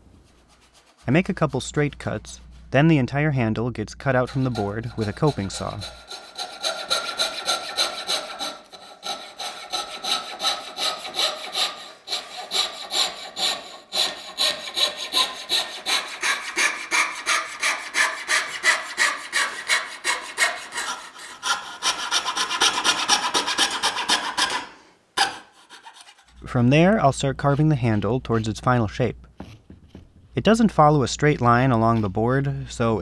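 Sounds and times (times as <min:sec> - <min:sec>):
saw rasping through wood: 0:04.1 - 0:28.9.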